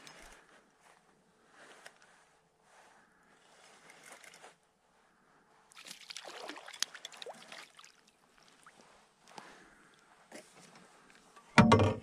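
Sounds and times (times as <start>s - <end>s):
fish splashing in water: 5.8s - 8.8s.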